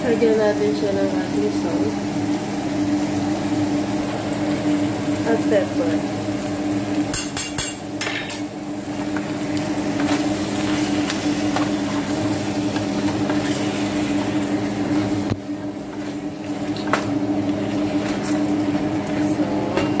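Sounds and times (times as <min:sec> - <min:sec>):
spatula knocking against pot: 0:07.1 - 0:08.4.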